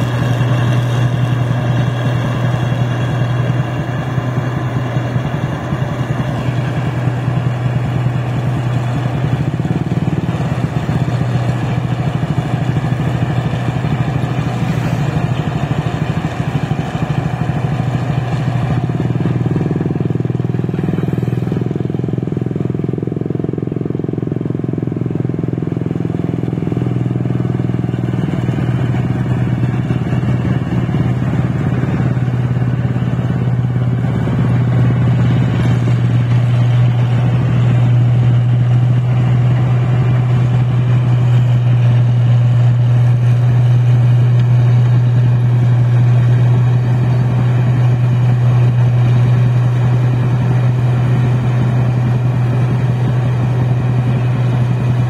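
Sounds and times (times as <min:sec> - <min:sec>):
combine harvester engine droning: 0:00.0 - 0:55.0.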